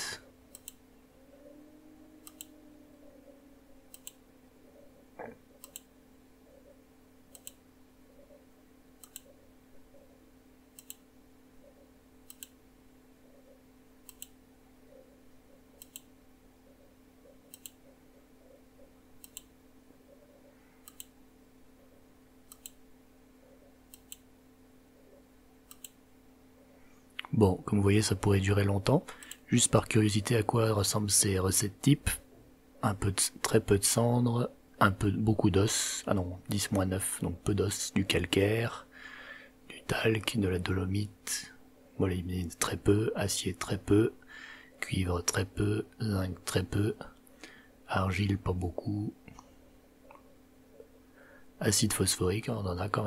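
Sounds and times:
faint steady hum: 0.0 - 53.0
computer mouse clicking: 0.5 - 0.8, 2.2 - 2.6, 3.9 - 4.2, 5.6 - 5.9, 7.3 - 7.6, 9.0 - 9.4, 10.7 - 11.0, 12.2 - 12.6, 14.0 - 14.4, 15.7 - 16.1, 17.3 - 18.0, 19.2 - 19.5, 20.8 - 21.2, 22.5 - 22.8, 23.9 - 24.3, 25.7 - 26.0.

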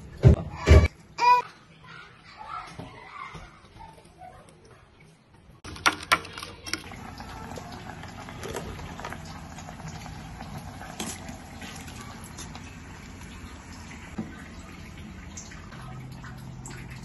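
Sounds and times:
water boiling in a pot: 6.8 - 17.0.

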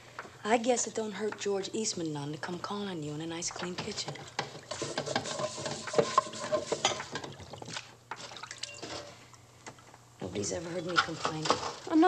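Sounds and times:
plates and cutlery clinking: 3.6 - 9.2.

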